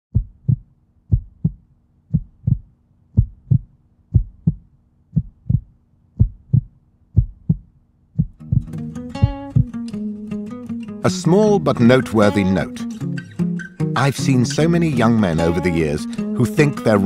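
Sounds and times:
heartbeat thumps: 0.1s - 9.9s.

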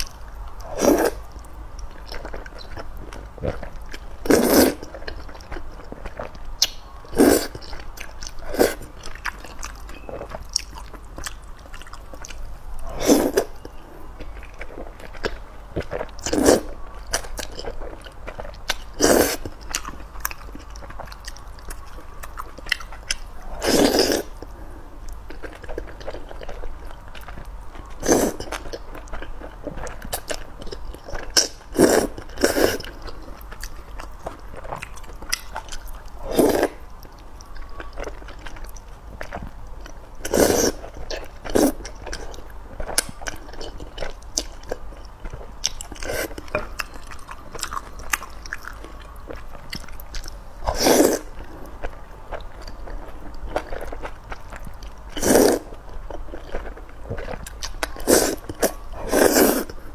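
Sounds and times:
wet chewing: 0.0s - 59.9s
person slurping noodles: 0.7s - 1.2s, 4.3s - 4.8s, 12.9s - 13.4s, 23.6s - 24.3s, 40.3s - 40.8s, 50.7s - 51.3s, 55.2s - 55.7s, 58.0s - 58.4s, 59.0s - 59.8s.

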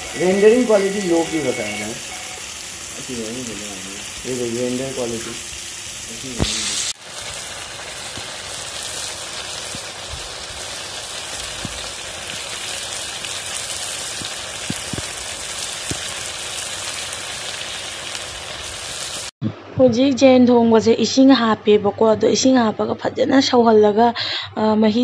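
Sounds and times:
food frying hiss: 0.0s - 19.4s.

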